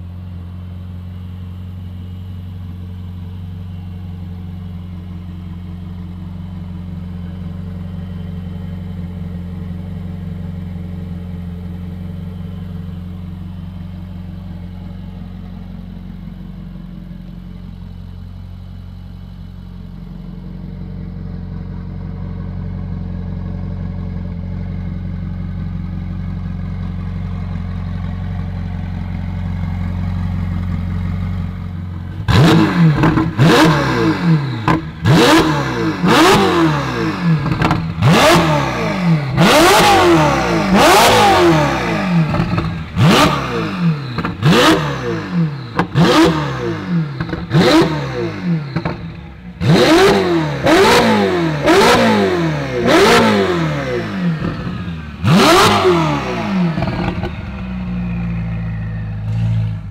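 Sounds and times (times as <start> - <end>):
car engine idling: 0.0 - 59.9
engine revving throttle blips: 32.0 - 59.9.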